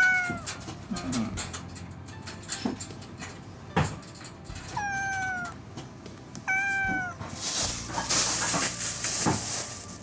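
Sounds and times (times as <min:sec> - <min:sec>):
cat meowing: 0:00.0 - 0:00.6, 0:04.7 - 0:05.6, 0:06.4 - 0:07.3.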